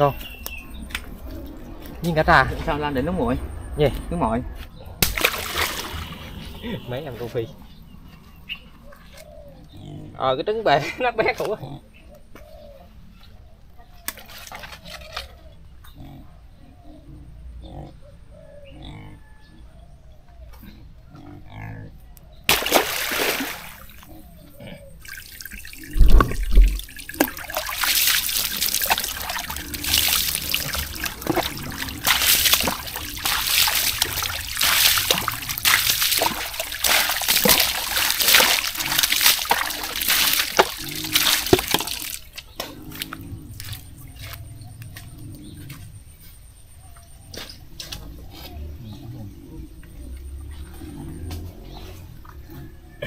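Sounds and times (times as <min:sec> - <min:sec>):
water splashing and trickling: 0:00.0 - 0:07.8, 0:14.1 - 0:15.3, 0:22.5 - 0:44.8
loud low thump: 0:26.0 - 0:26.8.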